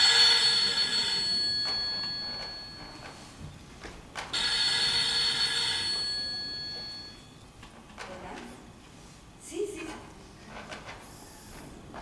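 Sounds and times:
telephone bell ringing: 0:00.0 - 0:03.3, 0:04.4 - 0:07.4.

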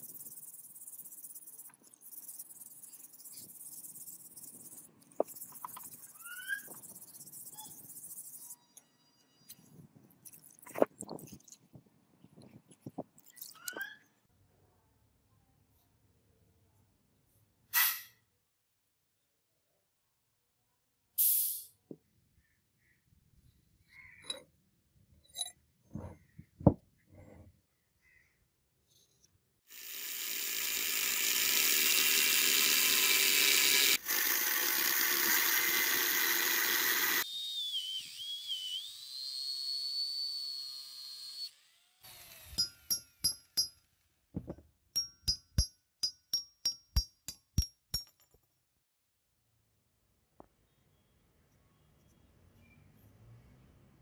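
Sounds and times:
angle grinder cutting steel: 0:29.7 - 0:43.7.

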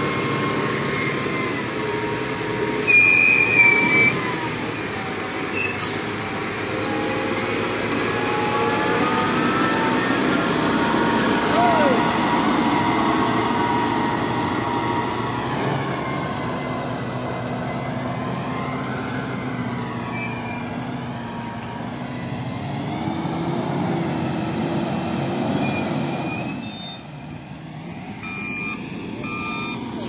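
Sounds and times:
wheel loader diesel engine: 0:00.0 - 0:30.0
reversing alarm beeping: 0:25.6 - 0:27.1, 0:28.0 - 0:30.0.

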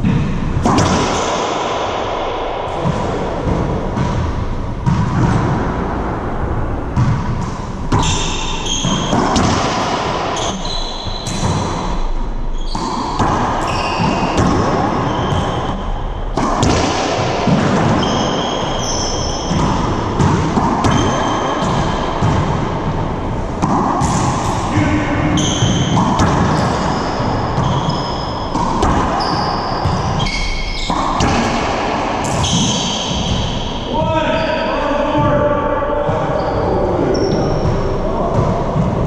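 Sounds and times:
racquetball hits echoing: 0:00.0 - 0:34.2, 0:35.1 - 0:39.0
sneakers squeaking on hardwood: 0:07.9 - 0:11.9, 0:12.6 - 0:15.8, 0:17.7 - 0:22.4, 0:25.4 - 0:31.6, 0:32.2 - 0:33.7.

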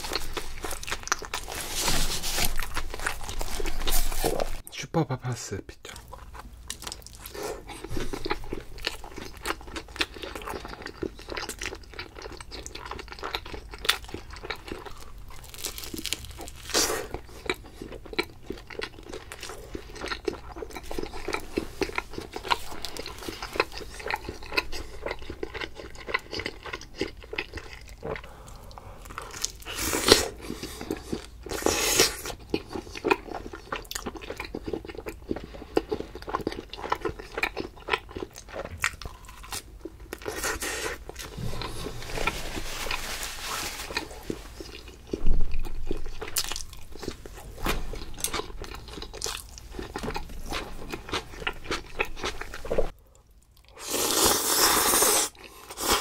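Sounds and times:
chewing crunchy pizza: 0:00.0 - 0:04.6, 0:05.8 - 0:43.0, 0:43.9 - 0:56.0.

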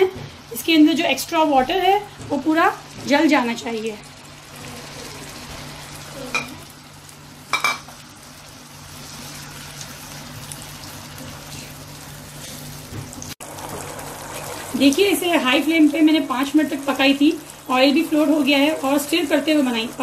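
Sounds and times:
puree sizzling in hot oil: 0:00.6 - 0:20.0.

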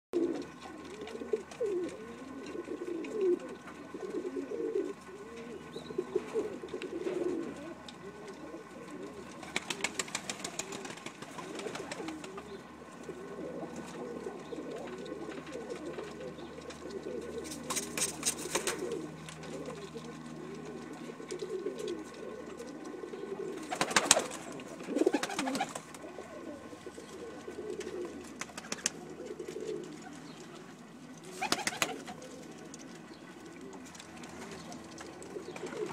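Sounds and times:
pigeons cooing: 0:00.2 - 0:35.9.

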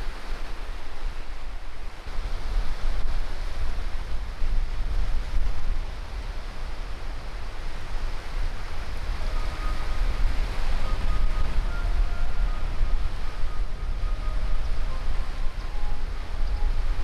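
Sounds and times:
sea waves washing on beach: 0:00.0 - 0:17.0
faint sustained music notes: 0:09.2 - 0:17.0.

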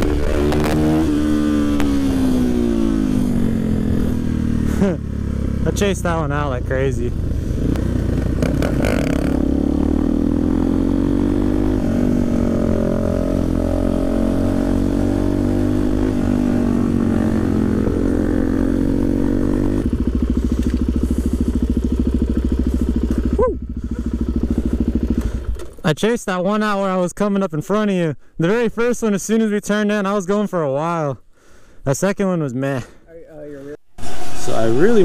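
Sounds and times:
motorcycle engine running: 0:00.0 - 0:25.8.

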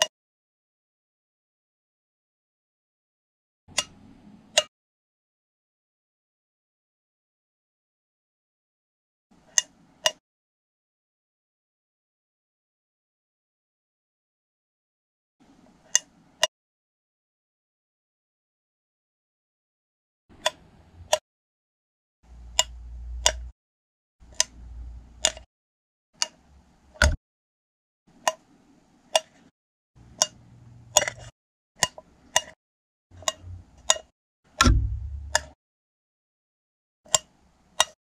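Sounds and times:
low rumble: 0:22.4 - 0:23.5, 0:34.6 - 0:35.4
sharp paired clicks: 0:33.2 - 0:35.6.

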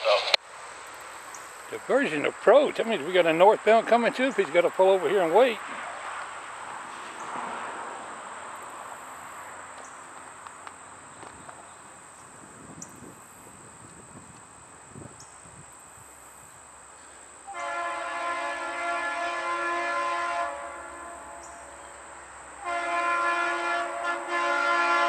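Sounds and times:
faint outdoor background: 0:00.0 - 0:25.0
locomotive air horn: 0:17.5 - 0:25.0.

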